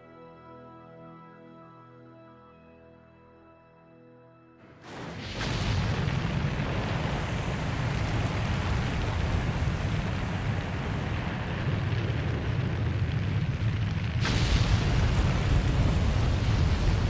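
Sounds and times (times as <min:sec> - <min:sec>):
rocket engines rumbling: 0:04.9 - 0:17.0.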